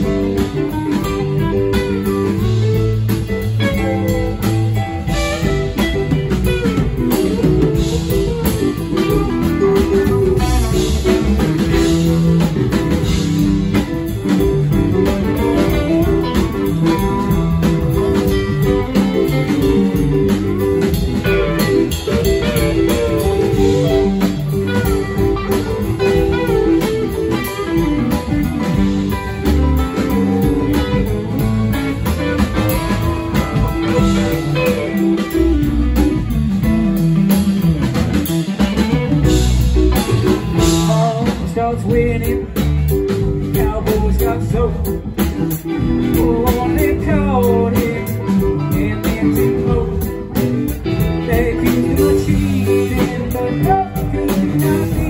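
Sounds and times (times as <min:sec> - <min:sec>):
drum kit: 0:00.0 - 0:55.0
electric guitar lead: 0:00.0 - 0:55.0
keyboards: 0:00.0 - 0:55.0.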